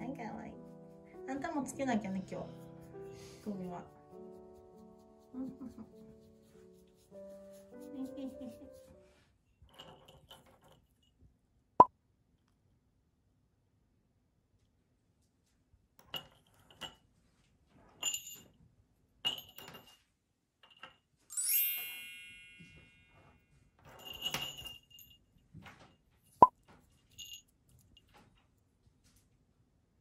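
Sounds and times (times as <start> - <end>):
bell ringing out: 21.3 - 23.0
jingle bells jingling: 21.3 - 23.1, 24.0 - 25.3, 27.1 - 27.4.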